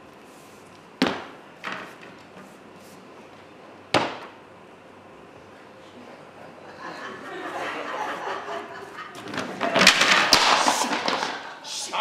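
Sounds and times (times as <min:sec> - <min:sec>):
wooden panels knocking together: 0:09.2 - 0:11.6.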